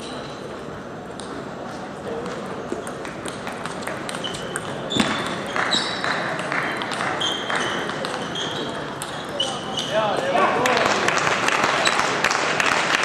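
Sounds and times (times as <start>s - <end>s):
table tennis balls clicking: 2.1s - 13.0s
short high squeaks: 4.1s - 6.1s, 6.7s - 10.2s
murmur of voices: 6.0s - 13.0s.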